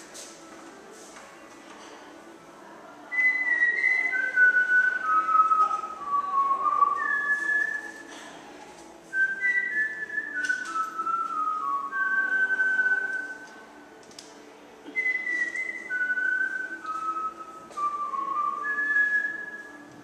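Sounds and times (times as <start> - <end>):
person whistling a tune: 3.1 - 8.1, 9.1 - 13.5, 14.9 - 19.9.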